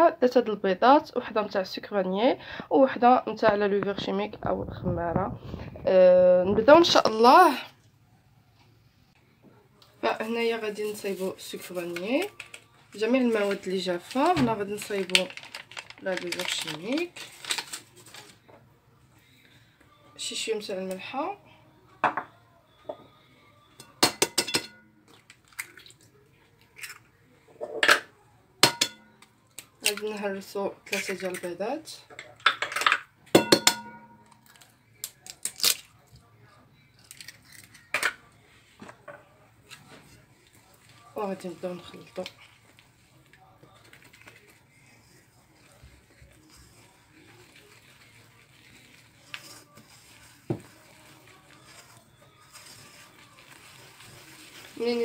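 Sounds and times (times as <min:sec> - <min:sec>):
knock on bowl: 0:22.0 - 0:22.3, 0:33.4 - 0:34.2
egg cracking on glass bowl: 0:32.4 - 0:35.9.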